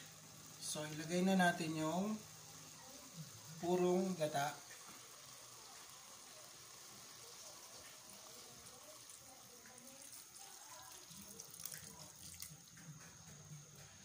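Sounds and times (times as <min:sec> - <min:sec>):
liquid trickling into pot: 0:07.7 - 0:13.4.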